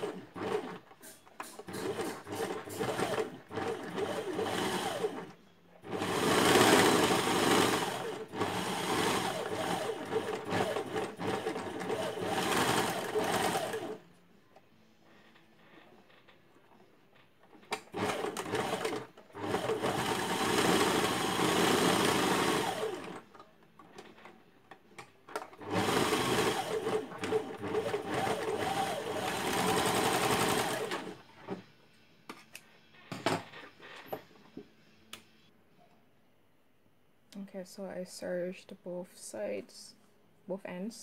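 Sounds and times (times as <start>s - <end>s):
overlock machine stitching: 0.0s - 14.0s, 17.6s - 23.3s, 25.5s - 31.6s.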